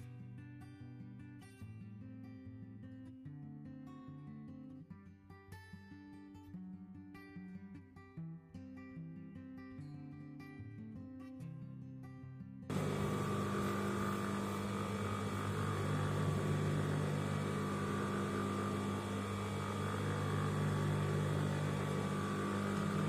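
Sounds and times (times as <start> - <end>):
sewing machine motor hum: 12.7 - 23.0.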